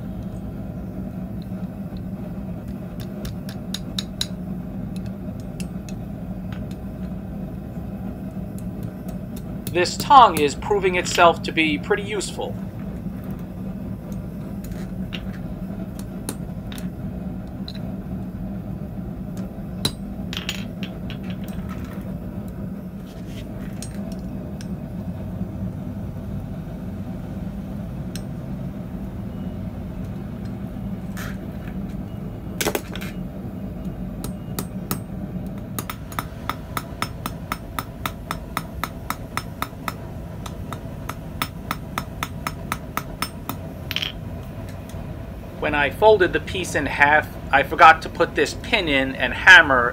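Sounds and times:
low hum: 0.0 - 49.9
hammer striking hot metal on anvil: 3.0 - 4.4, 19.8 - 21.4, 28.1 - 28.4, 34.2 - 35.1, 35.8 - 44.2.

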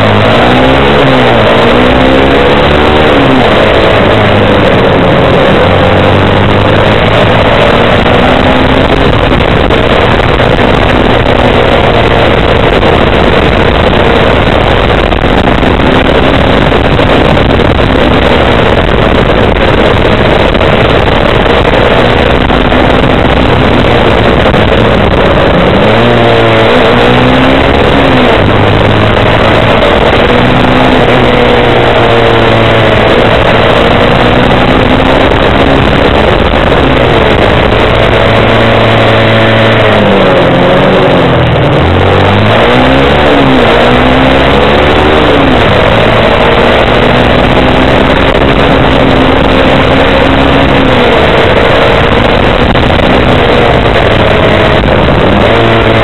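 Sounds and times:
motorcycle engine accelerating: 0.0 - 56.0
wind and road noise: 0.0 - 56.0.

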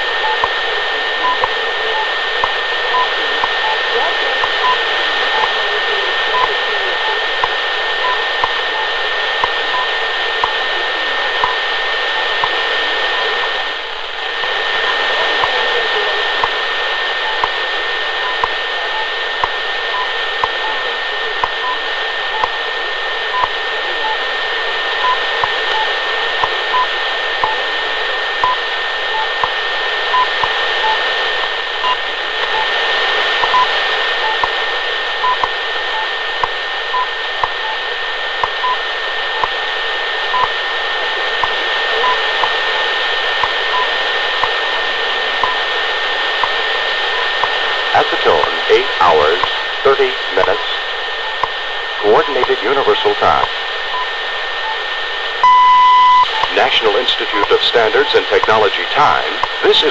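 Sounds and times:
radio static hiss: 0.0 - 59.9
short time-signal pips: 55.4 - 59.9.

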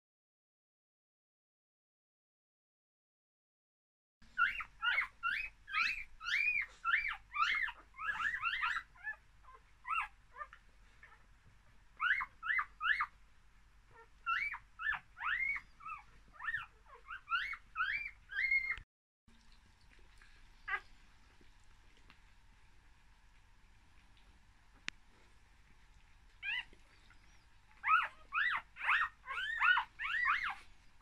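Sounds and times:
puppies squeaking and crying: 4.4 - 11.2, 12.0 - 13.1, 14.0 - 18.8, 20.7 - 20.9, 26.4 - 30.7.

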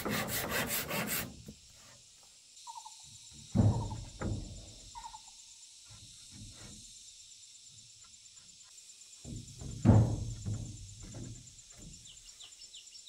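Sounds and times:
insect trilling: 2.5 - 9.7
bird chirping: 2.6 - 4.2, 4.8 - 5.6, 11.5 - 13.0
wooden boards knocking: 3.5 - 4.7, 9.2 - 12.0.

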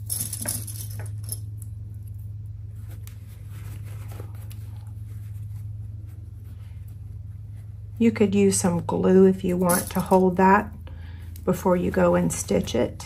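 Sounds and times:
steady low hum: 0.0 - 13.0
fabric rustling: 2.6 - 7.9.

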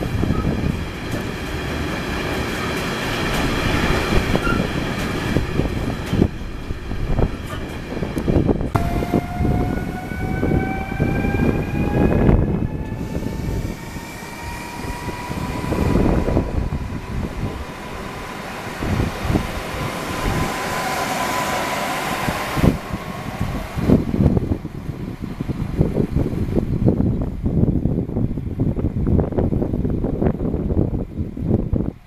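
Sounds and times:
train rumble: 0.0 - 32.0
electric train drive whine: 3.3 - 27.1.

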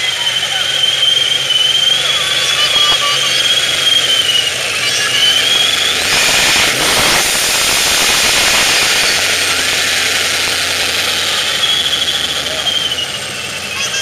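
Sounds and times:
car engine idling and revving: 0.0 - 14.0
high-pitched engine whine: 0.0 - 14.0.

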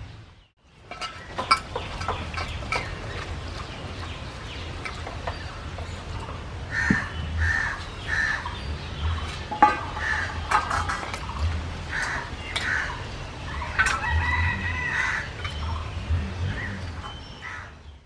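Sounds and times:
steel pot clinking: 0.6 - 17.7
water splashing in a pot: 0.7 - 17.5
water poured from a jug: 0.9 - 17.1.

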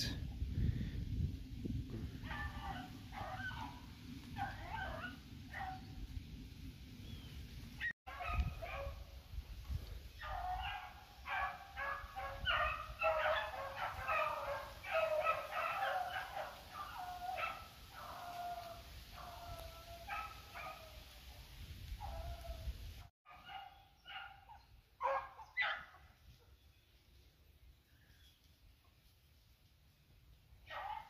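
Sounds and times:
hounds baying: 2.2 - 5.9, 10.2 - 20.9, 23.3 - 26.0.

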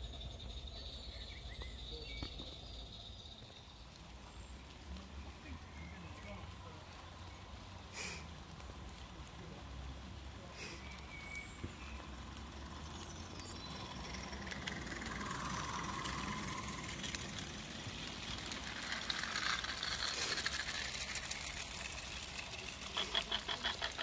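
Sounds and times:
wagons clicking over rails: 0.0 - 24.0
steam exhaust hissing: 10.4 - 24.0.

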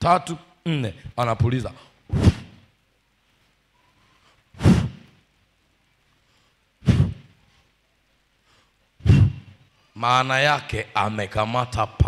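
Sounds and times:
man blowing puffs into microphone: 2.1 - 2.6, 4.0 - 5.2, 6.8 - 7.4, 8.6 - 9.6.

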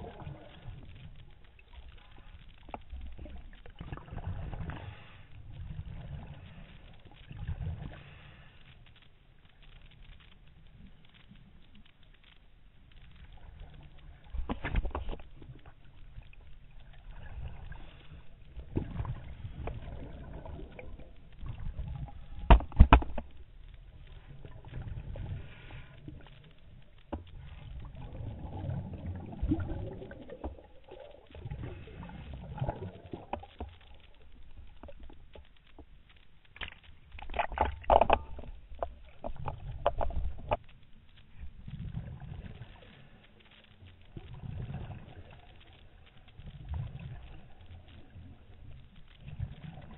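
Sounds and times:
regulator hiss underwater: 7.8 - 8.8
rush of bubbles: 16.8 - 22.9, 27.8 - 33.7, 44.3 - 45.5.

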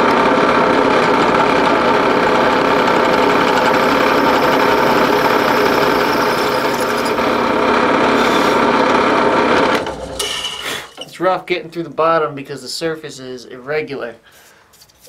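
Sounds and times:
drill cutting through metal: 0.0 - 9.9.

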